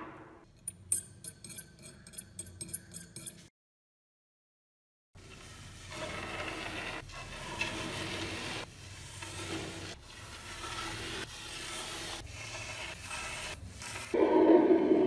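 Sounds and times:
paintbrush sweeping grit on wood: 5.4s - 14.2s.

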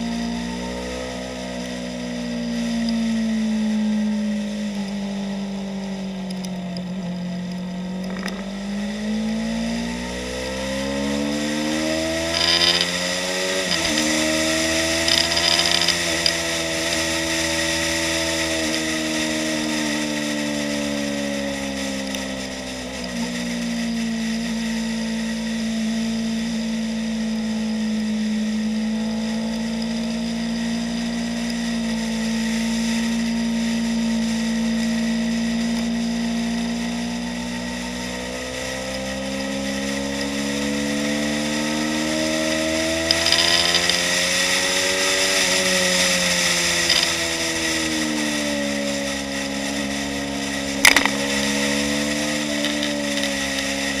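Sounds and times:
motorcycle engine revving: 0.0s - 54.0s
sharp click: 50.8s - 51.5s.

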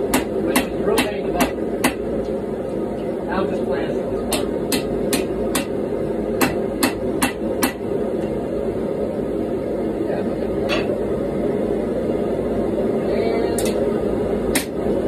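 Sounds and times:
hammer striking steel on anvil: 0.0s - 2.0s, 4.3s - 5.8s, 6.4s - 7.8s, 14.5s - 14.8s
gas forge burner rushing: 0.0s - 15.0s.

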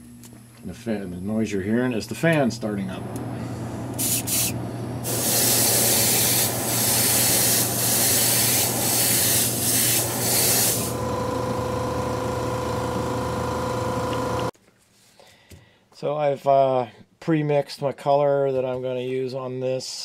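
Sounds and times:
fan humming: 0.0s - 14.5s
steady whine: 0.0s - 14.6s
airbrush spraying hiss: 4.0s - 11.0s.

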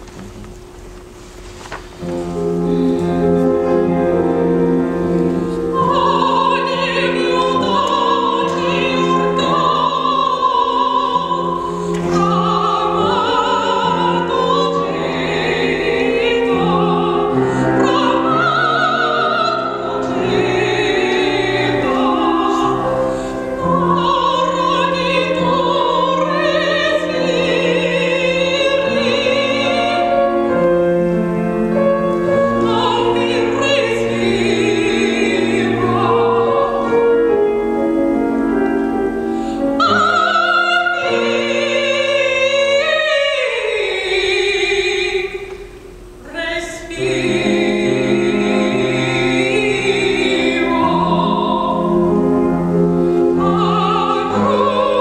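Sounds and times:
grand piano: 0.0s - 55.0s
woman singing operatically: 5.7s - 30.2s, 32.4s - 37.0s, 39.8s - 45.5s, 46.2s - 52.1s, 53.4s - 55.0s.

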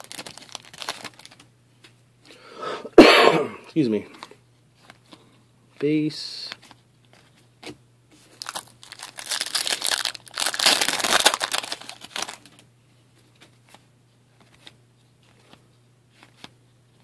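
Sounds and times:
plastic wrapper crinkling: 0.0s - 1.4s, 8.4s - 12.6s
cards being handled: 13.2s - 16.6s.

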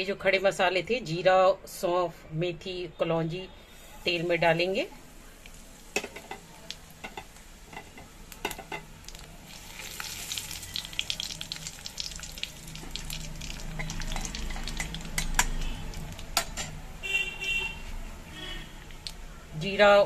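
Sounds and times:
seeds popping and sizzling in oil: 5.1s - 16.8s, 18.8s - 19.2s.

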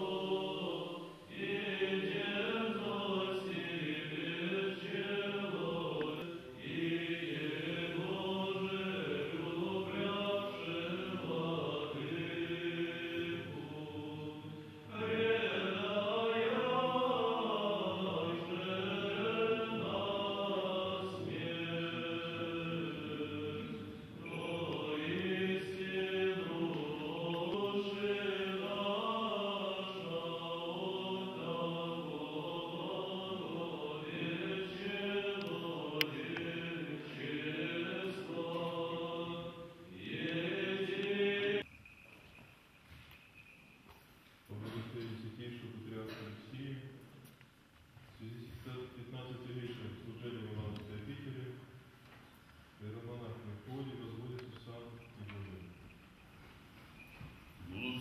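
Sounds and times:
male choir chanting: 0.0s - 41.6s, 57.6s - 58.0s.

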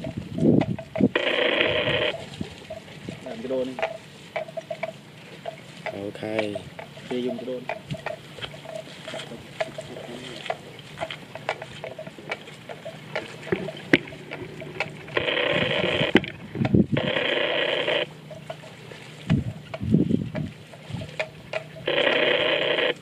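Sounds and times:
electronic ringing tone: 1.1s - 2.2s, 13.6s - 16.4s, 17.0s - 18.6s, 21.6s - 23.0s
small water splashes: 1.8s - 16.8s, 18.0s - 21.9s.

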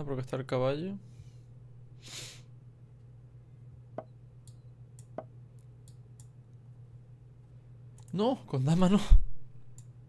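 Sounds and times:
steady low hum: 0.0s - 10.0s
faint mouse clicks: 4.0s - 6.4s, 8.0s - 8.2s, 9.7s - 10.0s.

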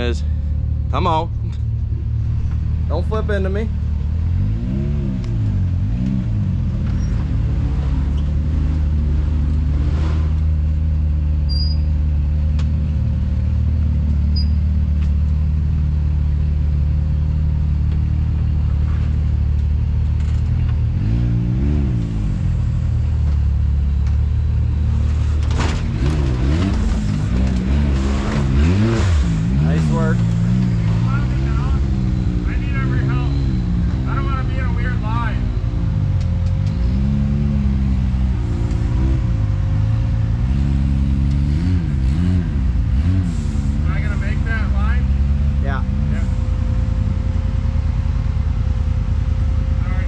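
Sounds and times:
utility vehicle engine idling and revving: 0.0s - 50.0s.

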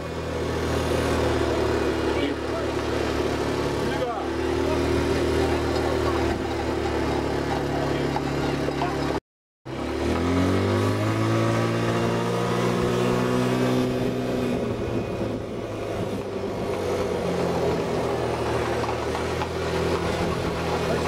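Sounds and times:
motor engine humming: 0.0s - 21.0s.

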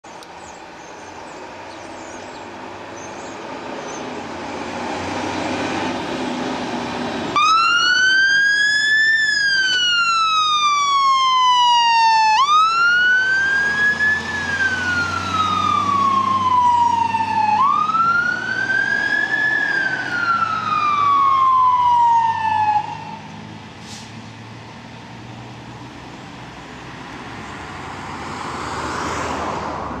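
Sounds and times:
fire engine engine: 0.1s - 30.0s
siren wailing: 7.4s - 23.3s.

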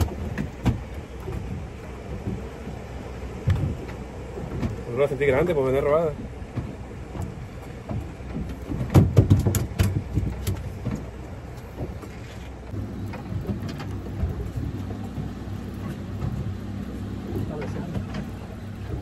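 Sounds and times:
low steady motor hum: 0.0s - 19.0s
knocks and rattles of gear: 7.8s - 14.5s.

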